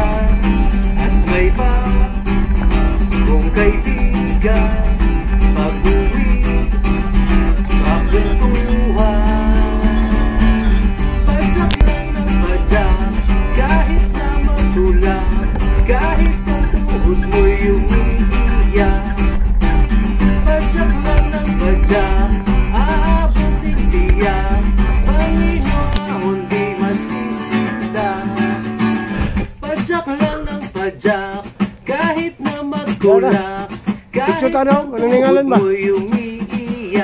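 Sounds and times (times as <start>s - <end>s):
low bass: 0.0s - 27.0s
guitar-led music: 0.0s - 37.0s.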